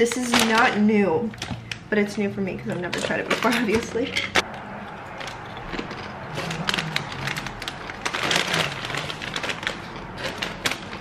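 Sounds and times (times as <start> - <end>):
crunchy chip being chewed: 4.4 - 11.0.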